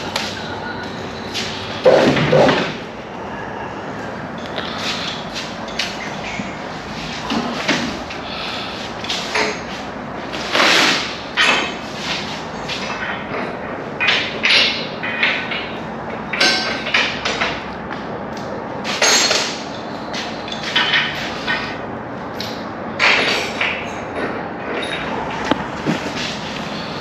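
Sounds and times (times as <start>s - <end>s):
metal parts clanking and knocking: 1.4s - 2.8s, 9.0s - 9.8s, 10.4s - 17.7s, 18.8s - 26.5s.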